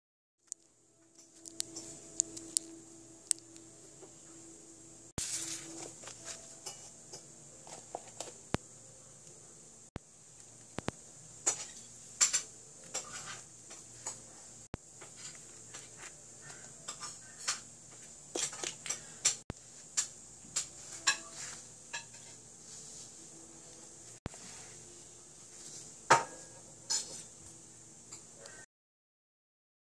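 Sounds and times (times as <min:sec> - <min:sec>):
faint steady hiss: 0:00.4 - 0:28.7
sand squashed on crinkly plastic: 0:05.2 - 0:05.8.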